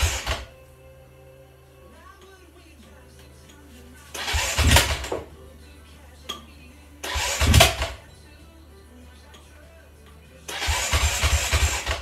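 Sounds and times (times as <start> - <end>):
engine cranking without starting: 0.0 - 0.5, 4.1 - 5.3, 7.0 - 8.0, 10.5 - 12.0.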